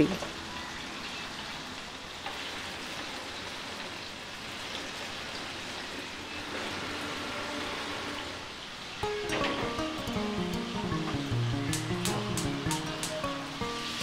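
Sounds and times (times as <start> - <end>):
chicken sizzling in oil: 8.6 - 14.0.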